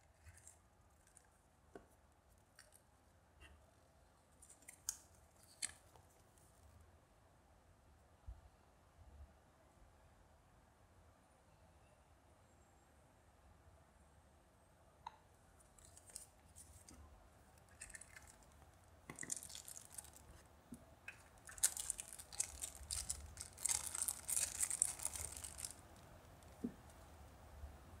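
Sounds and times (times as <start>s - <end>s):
plastic bag crinkling and tearing: 17.7s - 20.4s, 21.1s - 26.7s.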